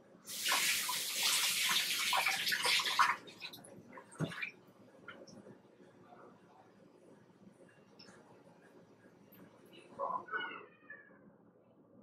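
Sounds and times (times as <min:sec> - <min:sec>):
tap running water into sink: 0:04.2 - 0:04.5.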